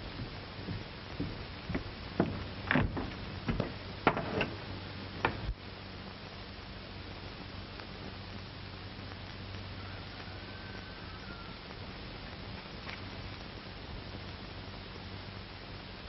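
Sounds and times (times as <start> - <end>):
film soundtrack hiss and hum: 0.0 - 16.0
footsteps on wooden floor: 0.2 - 4.6
door opening and shutting: 2.2 - 5.5.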